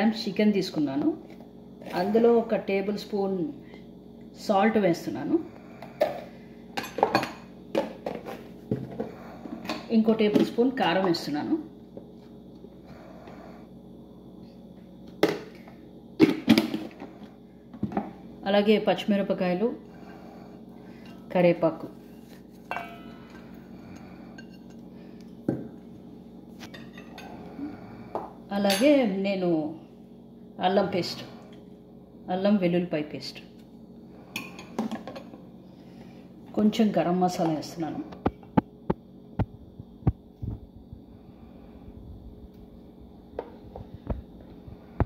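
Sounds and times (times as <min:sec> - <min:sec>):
steady low hum: 0:00.0 - 0:45.0
plate clinking on steel bowl: 0:22.7 - 0:23.4.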